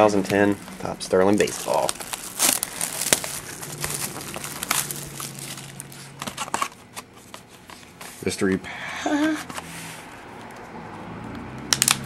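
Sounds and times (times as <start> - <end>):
cardboard packaging rustling: 0.0 - 8.5.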